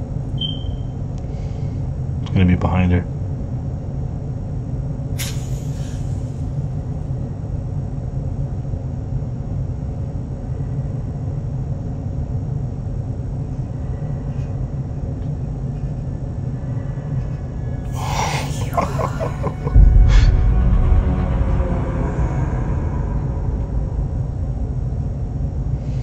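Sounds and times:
low rumbling drone: 4.6 - 8.8, 16.0 - 26.0.

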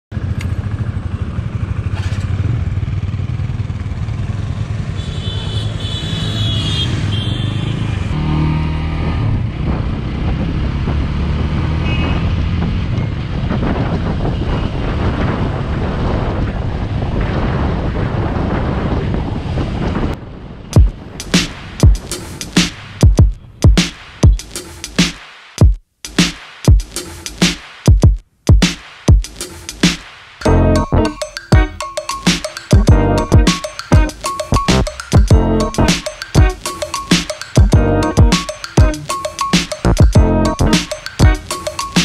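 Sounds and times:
motorcycle engine running: 0.1 - 5.9, 32.7 - 36.7, 37.6 - 39.1, 39.9 - 41.5
wind over microphone: 9.0 - 22.3.

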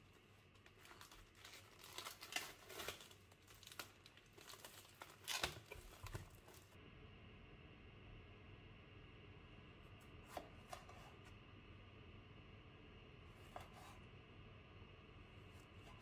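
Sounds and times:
plastic film crinkling and tearing: 0.0 - 6.8.

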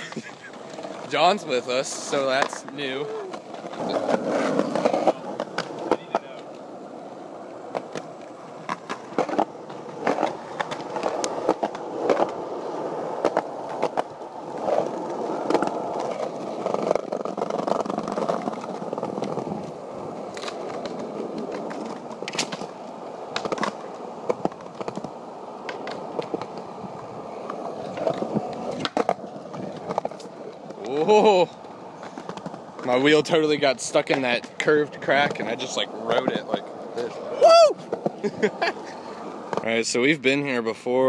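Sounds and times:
skateboard wheels clacking over seams: 0.0 - 39.8
skateboard wheels rumbling on concrete: 0.0 - 41.0.

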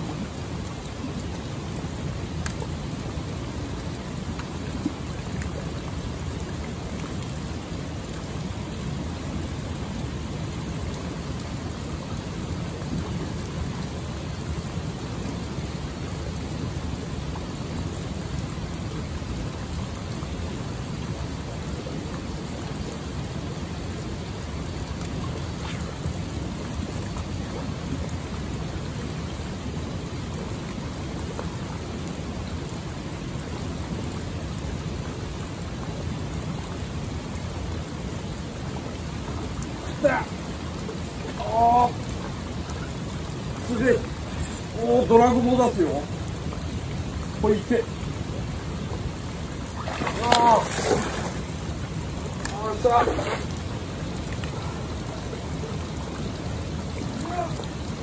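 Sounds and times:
water rushing with deep rumble: 0.0 - 58.0.

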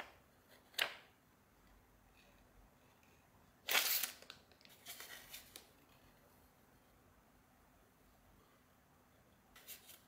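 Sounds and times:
paper and cardboard rustling: 3.6 - 6.0.

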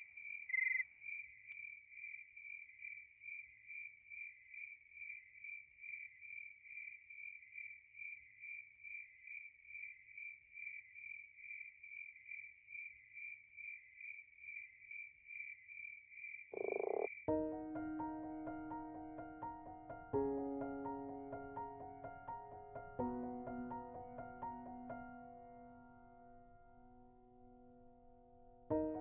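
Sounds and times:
insect chirping: 0.0 - 17.3
soft piano music: 17.3 - 29.0.

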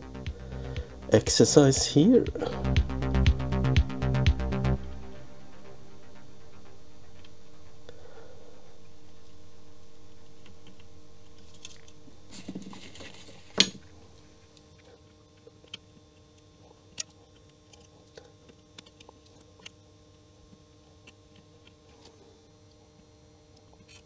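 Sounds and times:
quiet background music: 0.0 - 14.6.

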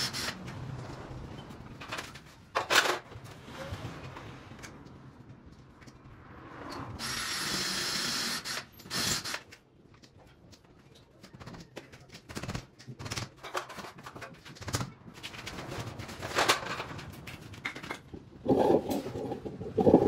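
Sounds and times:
clicks knocks and scrapes: 9.5 - 20.0.

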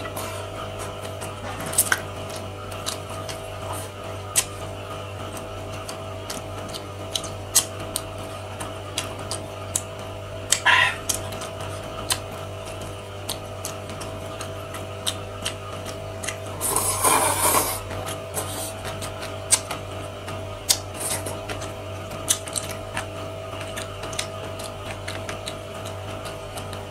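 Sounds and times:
person chewing: 0.0 - 4.6, 5.3 - 8.2, 9.0 - 19.7, 20.6 - 26.7
slurping noodles: 16.5 - 19.2, 20.9 - 21.4.

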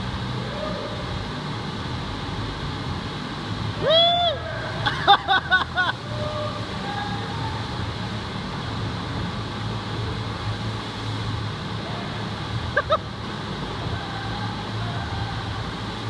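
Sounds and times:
rushing water from wave machine: 0.0 - 16.0.

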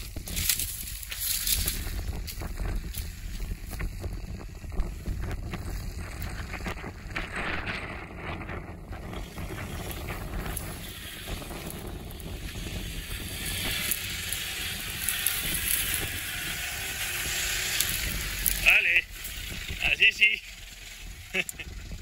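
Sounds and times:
diesel truck engine climbing: 0.0 - 22.0
wind noise on microphone: 0.0 - 22.0.

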